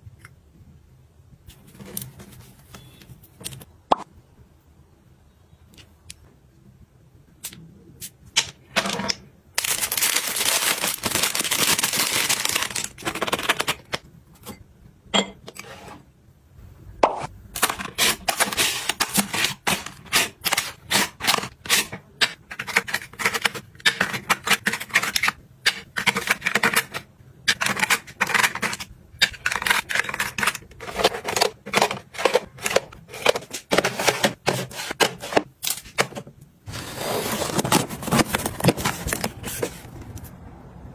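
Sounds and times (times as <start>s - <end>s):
plastic packaging crinkling: 9.6s - 14.0s.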